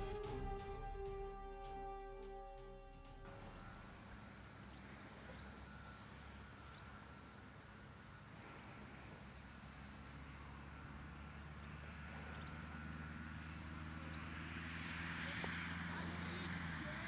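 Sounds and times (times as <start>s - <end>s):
low steady rumble: 0.0s - 17.0s
faint bird chirps: 3.3s - 14.7s.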